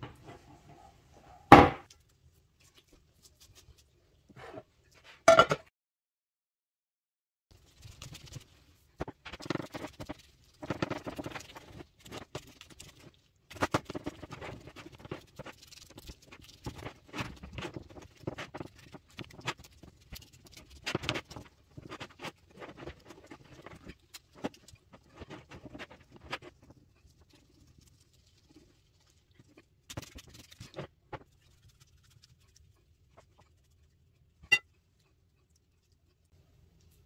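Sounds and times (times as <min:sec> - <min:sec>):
dough patting and rustling: 0:07.5 - 0:35.1.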